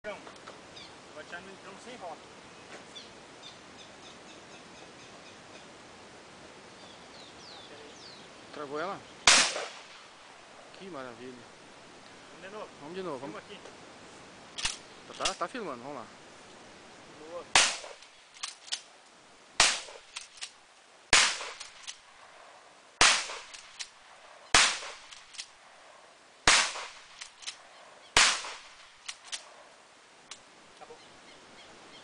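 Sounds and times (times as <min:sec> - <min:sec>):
shotgun shots: 0:09.2 - 0:10.1, 0:17.5 - 0:18.1, 0:19.6 - 0:20.2, 0:21.1 - 0:22.0, 0:23.0 - 0:23.9, 0:24.5 - 0:25.4, 0:26.4 - 0:27.5, 0:28.2 - 0:29.5.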